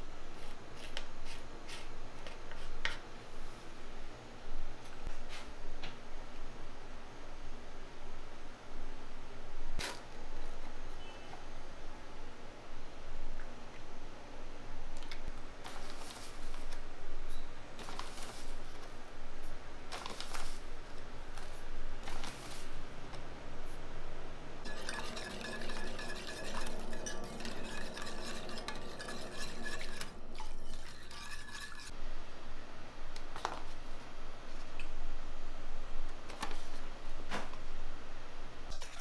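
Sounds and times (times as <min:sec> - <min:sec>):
whisk scraping metal saucepan: 0:24.6 - 0:31.9.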